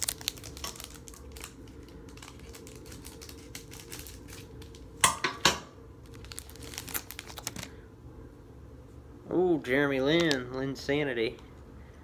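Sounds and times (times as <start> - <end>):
loud card rustles: 6.1 - 7.8.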